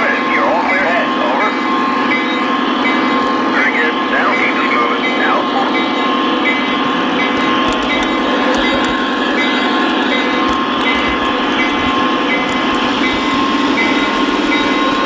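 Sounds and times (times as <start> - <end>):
model train running on track: 0.0 - 15.0.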